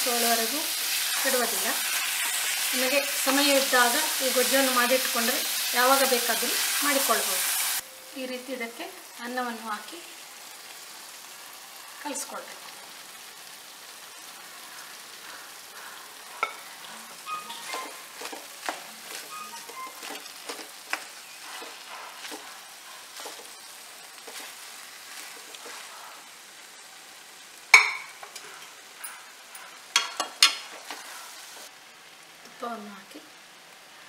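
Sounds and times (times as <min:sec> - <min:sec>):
food sizzling in pan: 0:00.0 - 0:34.0
spatula knocking on pan: 0:27.8 - 0:28.3.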